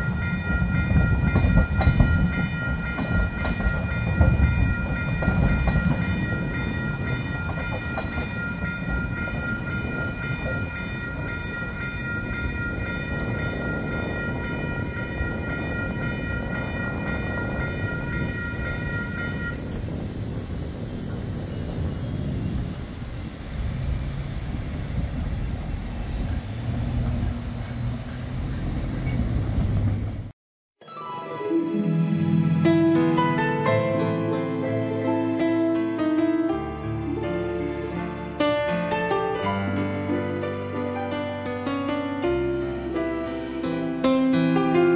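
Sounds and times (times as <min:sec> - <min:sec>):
level crossing bells ringing: 0:00.0 - 0:19.7
train rumbling past: 0:00.0 - 0:30.3.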